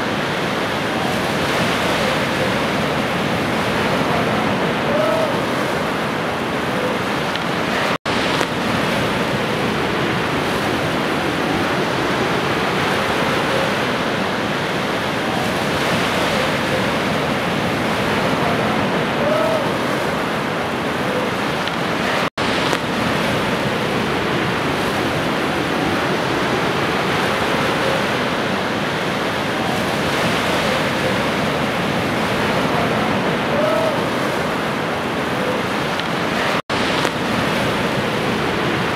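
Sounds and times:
rushing water: 0:00.0 - 0:38.9.

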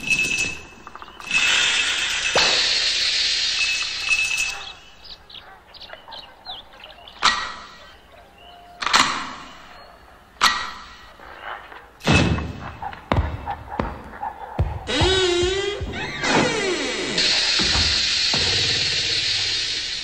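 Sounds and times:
cartoon sharp hits: 0:14.7 - 0:20.0
cartoon squeaky chirps: 0:14.9 - 0:17.6.

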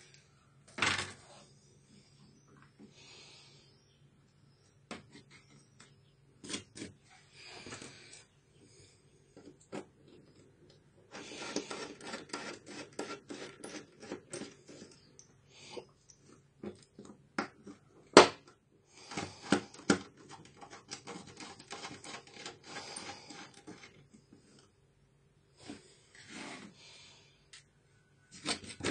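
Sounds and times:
tool scraping plastic case: 0:19.1 - 0:24.1, 0:28.3 - 0:28.9.

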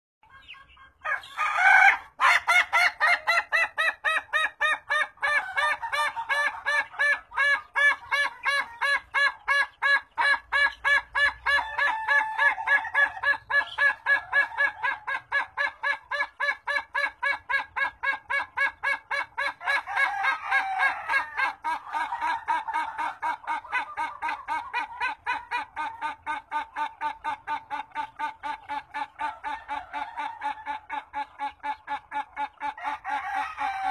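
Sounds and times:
rooster laughing crow: 0:19.6 - 0:22.9, 0:32.8 - 0:33.9.

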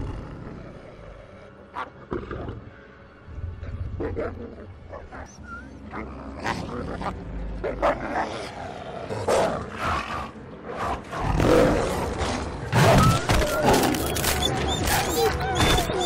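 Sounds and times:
tiger growling: 0:00.0 - 0:02.8, 0:04.0 - 0:16.0
wolves snarling: 0:04.0 - 0:16.0.

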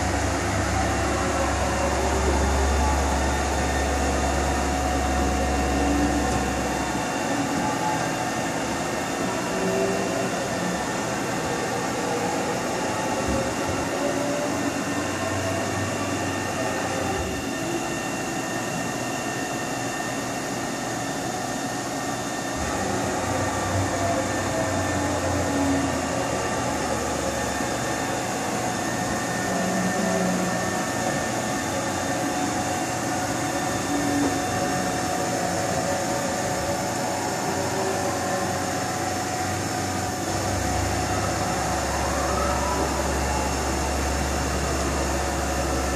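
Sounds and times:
axis drives droning: 0:00.0 - 0:18.0
machine hum: 0:00.0 - 0:45.9.

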